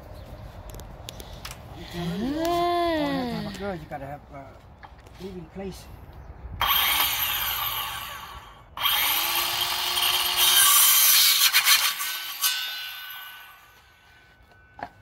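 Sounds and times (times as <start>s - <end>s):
circular saw cutting wood: 6.6s - 14.4s.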